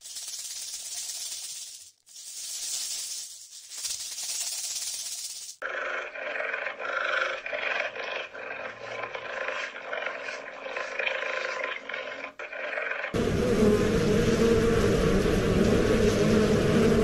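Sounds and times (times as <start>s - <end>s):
cheetah growling: 5.6s - 17.0s.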